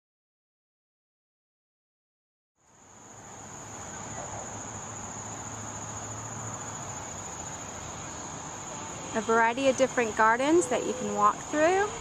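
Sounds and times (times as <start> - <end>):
insects chirring chorus: 2.6 - 12.0
outdoor background hiss: 2.6 - 12.0.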